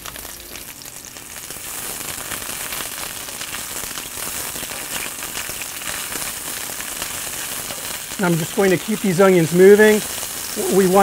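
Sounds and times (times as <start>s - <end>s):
onions sizzling in oil: 0.0s - 11.0s.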